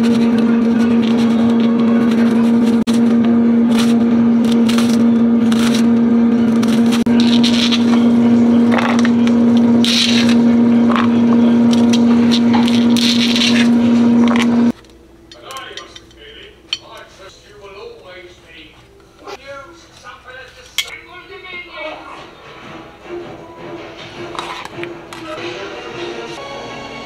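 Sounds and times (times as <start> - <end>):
loud electrical hum: 0.0 - 23.2
crackles and scrapes: 6.5 - 14.9.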